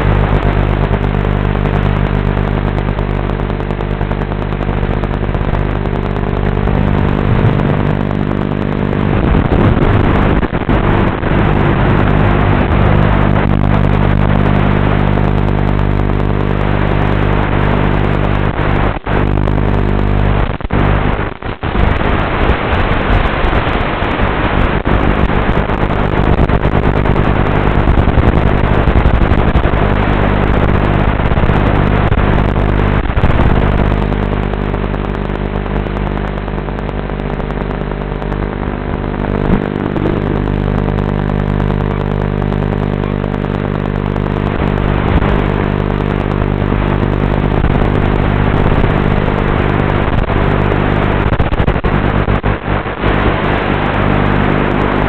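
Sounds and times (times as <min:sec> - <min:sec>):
drone propellers buzzing: 0:00.9 - 0:21.1, 0:36.0 - 0:55.0.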